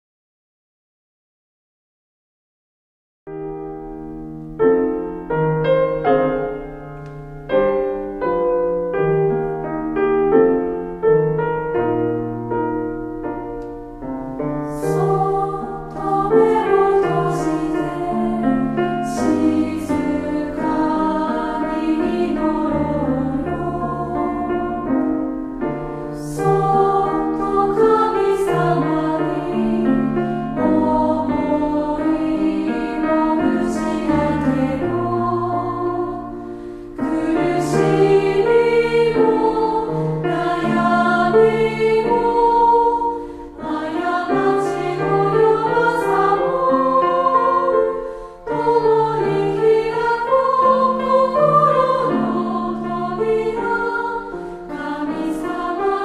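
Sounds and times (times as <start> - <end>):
piano: 3.3 - 56.0
women's choir singing: 14.4 - 56.0.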